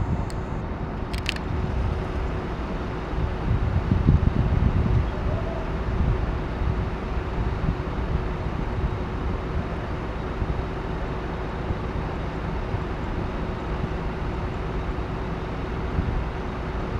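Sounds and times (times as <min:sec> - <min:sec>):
bus diesel engine rumbling: 0:00.0 - 0:16.9.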